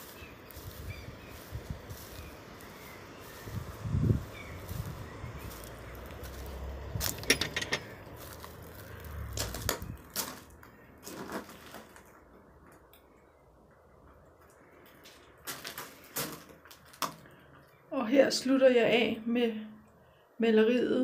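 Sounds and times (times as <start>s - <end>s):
footsteps on gravel: 0.0s - 12.3s
clicks and knocks: 7.0s - 8.0s.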